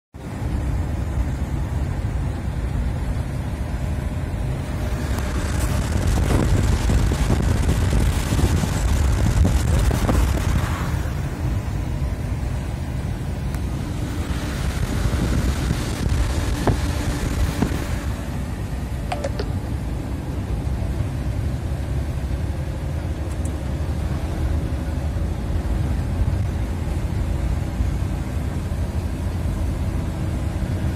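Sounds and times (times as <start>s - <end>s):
road and engine rumble: 0.1s - 30.9s
tyre hiss on wet road: 7.9s - 11.5s.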